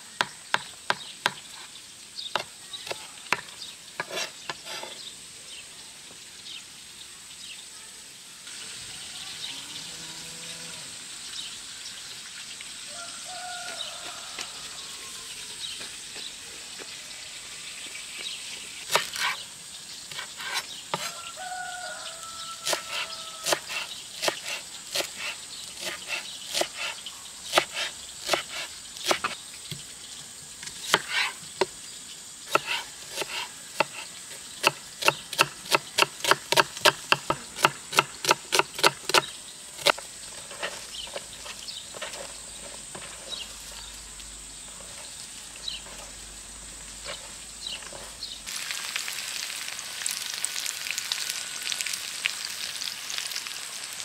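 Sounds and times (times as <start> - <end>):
knife chopping on cutting board: 32.5 - 34.0.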